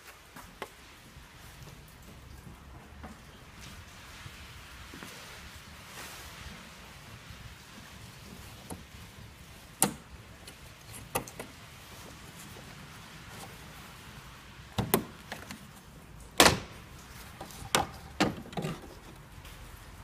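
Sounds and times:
plastic trim panel knocks and snaps: 0:14.8 - 0:15.5, 0:16.4 - 0:16.8.

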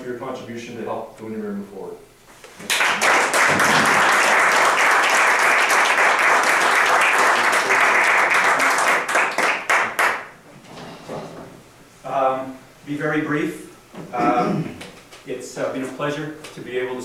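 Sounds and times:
group of people applauding: 0:02.6 - 0:10.4.

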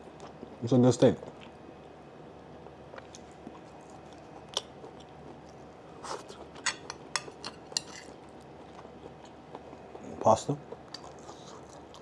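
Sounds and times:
person chewing steak: 0:02.9 - 0:12.0
fork clinking on plate: 0:06.6 - 0:08.1.

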